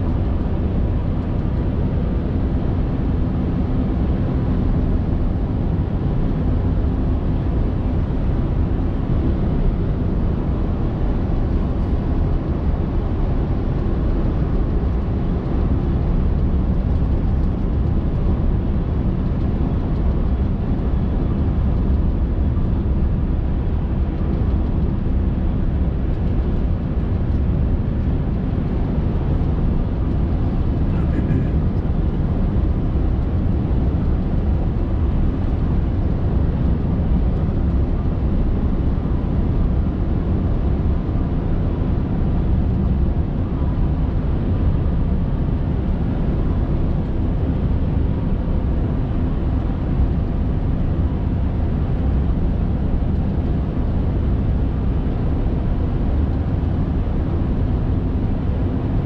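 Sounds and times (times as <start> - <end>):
truck diesel engine drone: 17.8 - 53.1
tyres on the road: 29.6 - 32.8.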